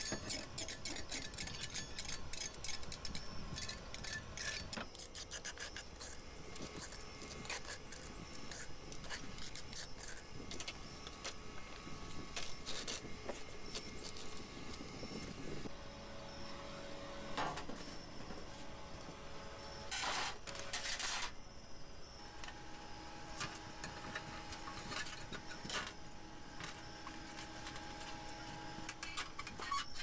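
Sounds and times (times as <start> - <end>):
scraping rust off metal blade: 0.0 - 11.3.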